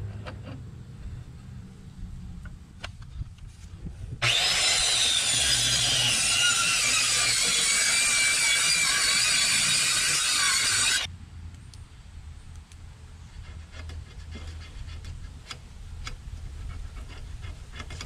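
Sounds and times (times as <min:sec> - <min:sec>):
power saw cutting wood: 0:04.2 - 0:11.1.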